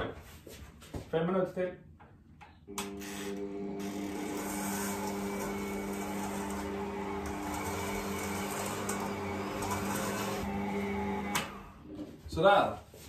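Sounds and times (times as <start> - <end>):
stand mixer motor humming: 2.8 - 11.8.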